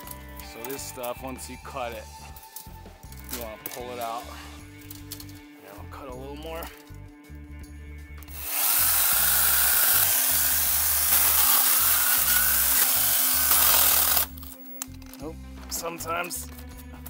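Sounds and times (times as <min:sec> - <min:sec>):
power saw cutting bamboo: 0:08.3 - 0:14.4.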